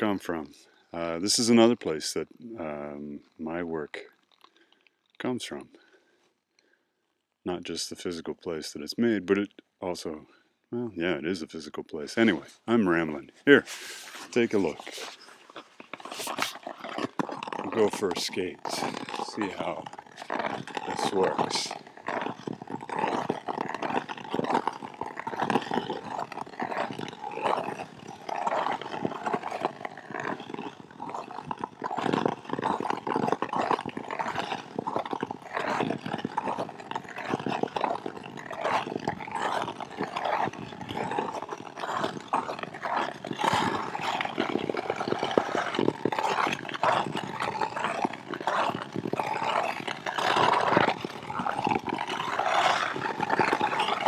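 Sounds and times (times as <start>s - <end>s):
ice skates scraping on ice: 12.2s - 54.0s.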